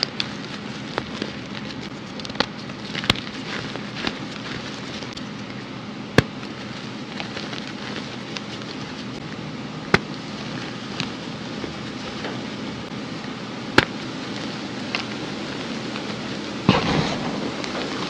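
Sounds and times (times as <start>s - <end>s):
chalk pieces snapping: 0.0s - 5.5s
hands crushing chalk: 0.0s - 5.5s, 6.2s - 9.2s, 13.7s - 18.0s.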